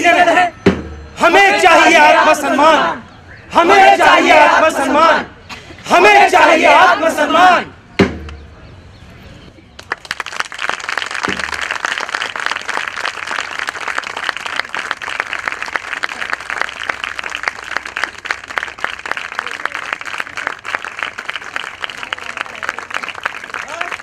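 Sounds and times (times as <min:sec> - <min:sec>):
crowd applauding: 0:09.8 - 0:24.0.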